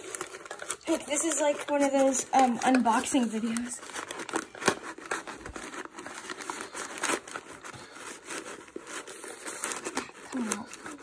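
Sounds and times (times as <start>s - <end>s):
packing paper crinkling: 0.0s - 11.0s.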